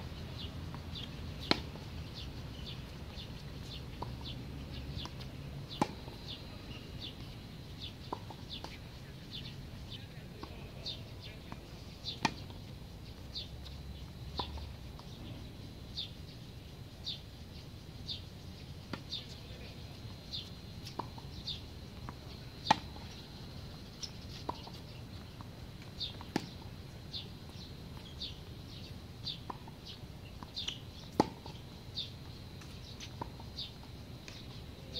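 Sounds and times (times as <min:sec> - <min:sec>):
bird chirping: 0:00.1 - 0:25.4, 0:26.0 - 0:31.2
tennis balls struck by rackets: 0:00.7 - 0:09.4, 0:10.0 - 0:15.4, 0:20.4 - 0:23.2, 0:24.0 - 0:27.3, 0:29.3 - 0:31.6.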